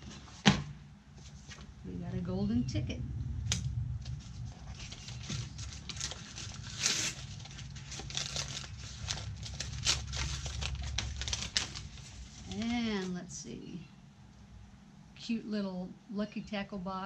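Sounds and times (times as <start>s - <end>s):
low steady hum: 0.0s - 17.0s
tissue paper crinkling: 4.0s - 13.2s.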